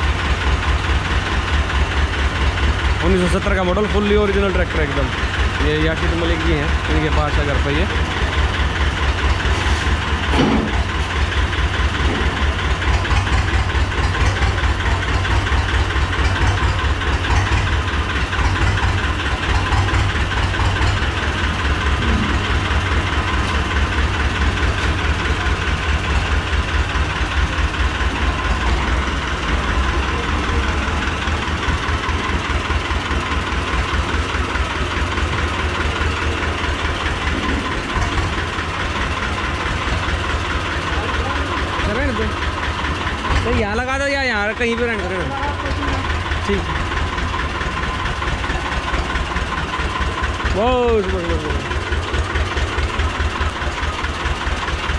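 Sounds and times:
tractor engine running: 0.0 - 54.9.

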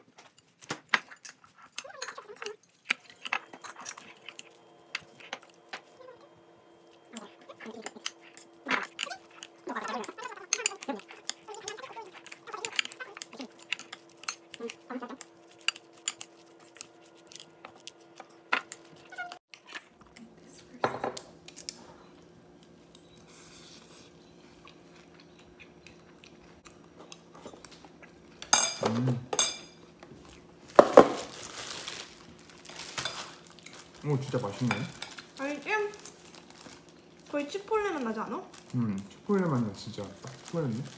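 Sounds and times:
fork clinking against ceramic bowl: 28.5 - 29.8.

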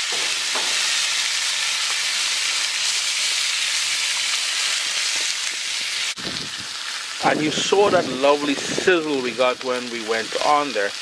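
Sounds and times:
fish sizzling on grill pan: 0.0 - 11.0.

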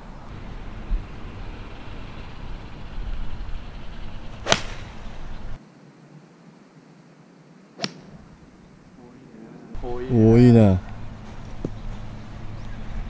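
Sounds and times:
golf club striking ball: 4.4 - 5.3, 7.8 - 8.2.

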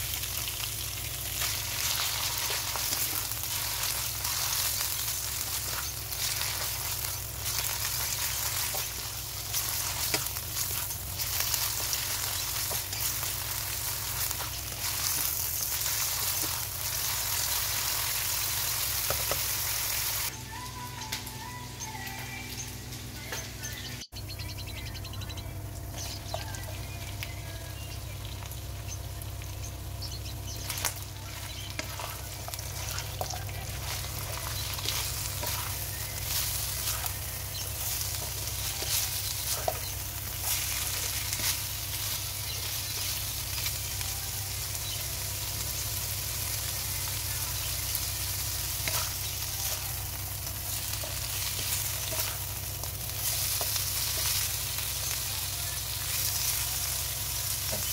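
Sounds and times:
food sizzling in a wok: 0.0 - 20.3, 27.8 - 57.9
spatula scraping a pan: 30.6 - 43.2, 48.8 - 49.8, 50.8 - 52.6.

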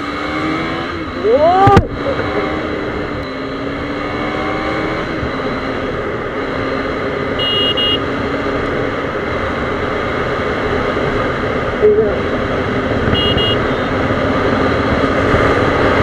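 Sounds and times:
motorcycle engine accelerating: 0.0 - 16.0
short high beep: 3.2 - 3.8, 5.2 - 8.0, 13.1 - 13.9.

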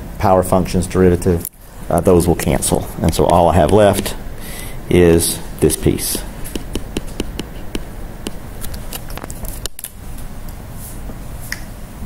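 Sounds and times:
stylus tapping on screen: 2.4 - 9.8.

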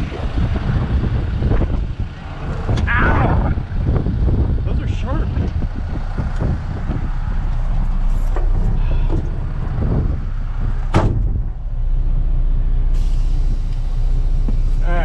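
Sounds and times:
truck diesel engine idling: 0.0 - 15.0
sharp knock: 10.9 - 11.4
air brake valve hiss: 13.0 - 14.9.

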